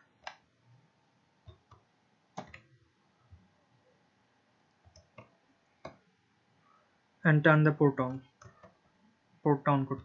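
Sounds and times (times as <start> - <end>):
keyboard and mouse clicks: 0.2 - 0.4, 1.4 - 2.7, 4.8 - 6.0, 8.0 - 8.8.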